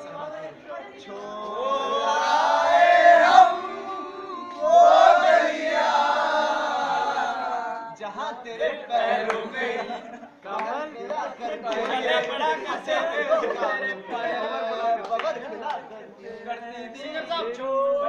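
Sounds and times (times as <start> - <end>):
men singing without instruments: 0.0 - 18.0
men chatting: 8.0 - 18.0.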